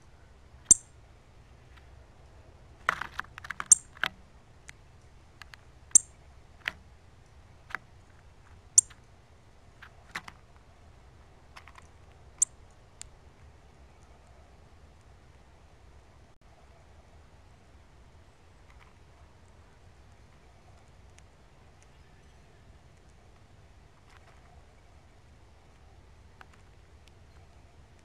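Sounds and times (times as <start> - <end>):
bird chip calls: 0.0 - 0.9, 3.6 - 4.0, 5.9 - 6.2, 8.7 - 9.0.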